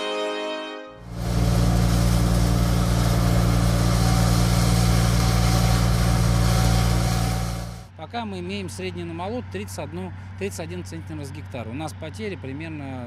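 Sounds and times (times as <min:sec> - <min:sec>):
combine harvester engine drone: 0:01.0 - 0:07.9
deep hum: 0:01.0 - 0:07.9.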